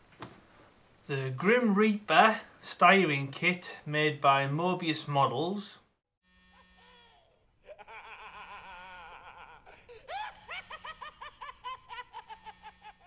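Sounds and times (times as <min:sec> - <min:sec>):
maniacal cartoon laugh: 0:06.6 - 0:13.0.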